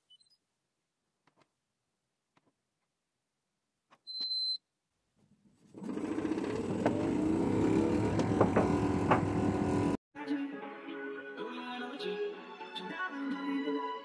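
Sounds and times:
dryer drum motor whine: 5.7 - 10.0.

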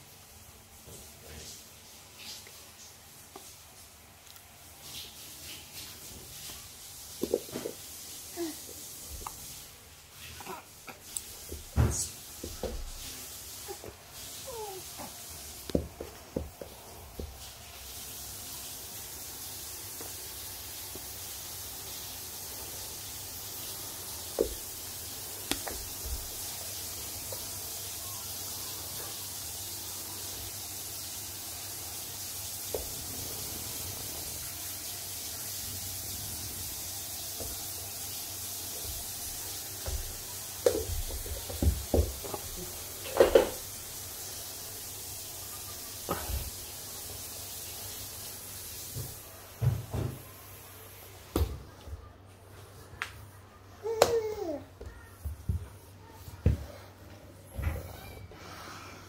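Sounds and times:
faint hiss: 0.0 - 52.2
baby's hands patting: 25.4 - 26.0.

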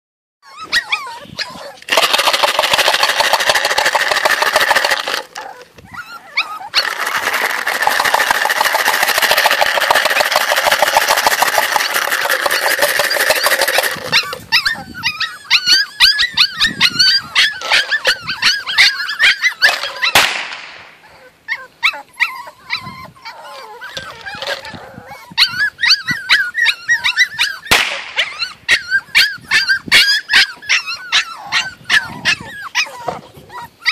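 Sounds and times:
puppies yipping and whimpering: 0.4 - 20.3, 20.9 - 33.9
gunshots: 20.1 - 21.0, 27.7 - 28.3.

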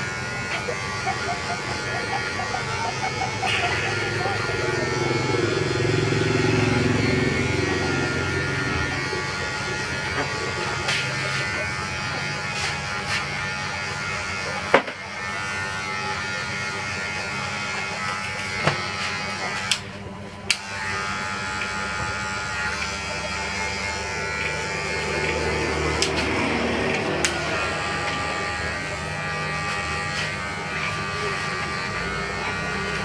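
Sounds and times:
hair clipper buzzing: 0.0 - 33.0.

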